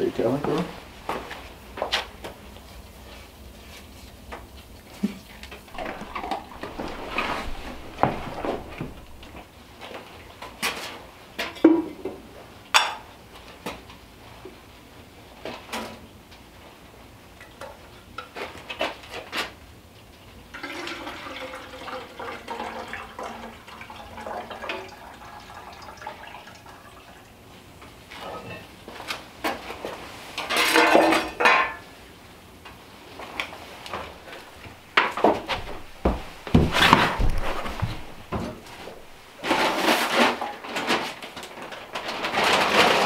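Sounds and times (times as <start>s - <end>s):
metal pots clinking and clattering: 5.6s - 9.5s, 20.5s - 26.5s, 30.4s - 31.9s, 34.2s - 43.0s
water pouring into a pot: 5.7s - 9.4s, 20.5s - 27.4s.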